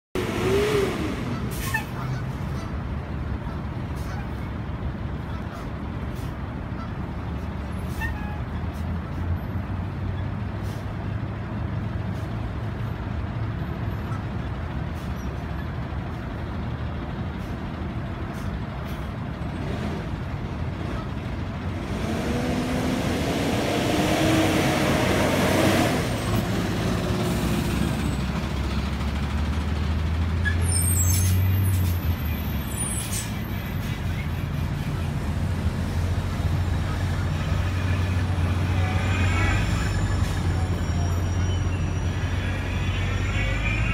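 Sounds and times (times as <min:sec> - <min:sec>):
vehicle engine passing by: 0:00.2 - 0:02.2, 0:19.6 - 0:30.4
heavy vehicle engines idling: 0:00.2 - 0:43.9.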